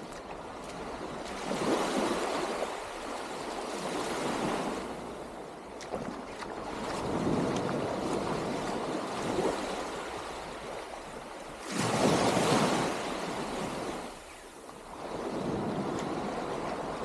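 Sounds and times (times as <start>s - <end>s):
waves washing onto sandy shore: 0.0s - 17.0s
wind on microphone: 3.5s - 10.8s, 14.9s - 17.0s.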